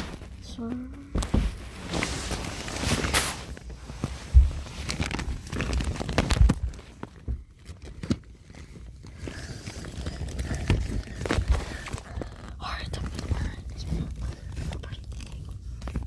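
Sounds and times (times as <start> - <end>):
phone rustling against bedding: 0.0 - 8.6.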